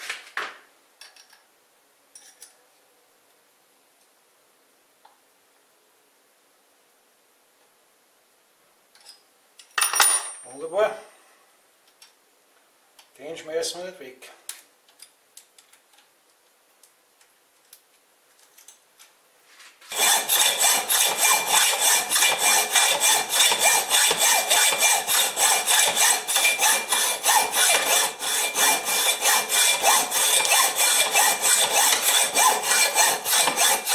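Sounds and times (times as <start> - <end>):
fast rhythmic rasping scrape: 19.9 - 33.9.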